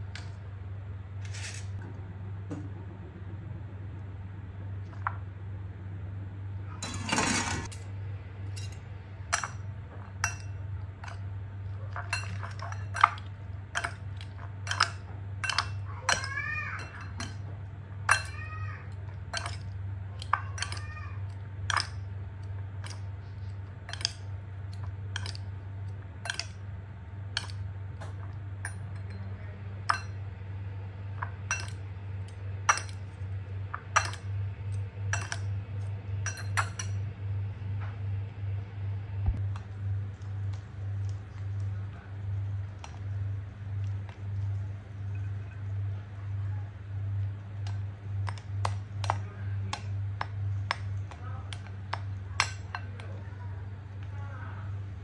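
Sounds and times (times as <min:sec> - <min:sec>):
low hum: 0:00.0 - 0:55.0
cutlery clinking on ceramic bowl: 0:11.9 - 0:17.5, 0:18.1 - 0:18.4, 0:19.3 - 0:20.8, 0:21.7 - 0:22.0, 0:23.9 - 0:25.5, 0:26.2 - 0:26.6, 0:27.4 - 0:30.2, 0:31.2 - 0:31.8, 0:32.7 - 0:33.1, 0:33.7 - 0:37.0, 0:47.6 - 0:53.1.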